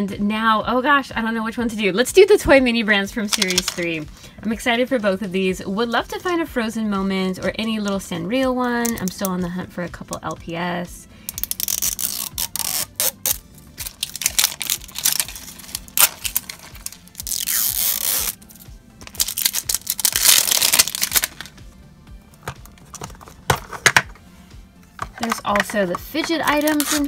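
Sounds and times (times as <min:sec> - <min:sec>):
background music: 0:00.0 - 0:27.0
plastic capsule clicking open: 0:03.3 - 0:03.8, 0:11.3 - 0:13.1
plastic wrapping crinkling and tearing: 0:11.4 - 0:21.5, 0:26.4 - 0:27.0.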